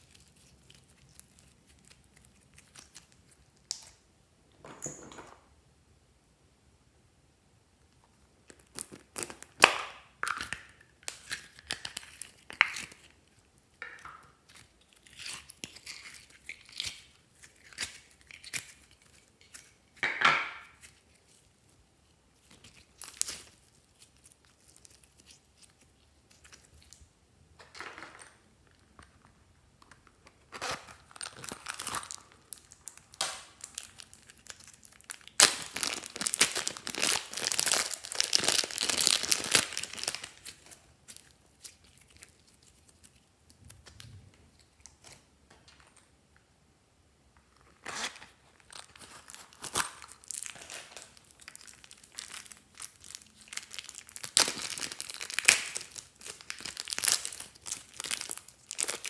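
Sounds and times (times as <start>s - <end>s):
plastic zip bag crinkling: 30.4s - 42.4s, 47.7s - 59.0s.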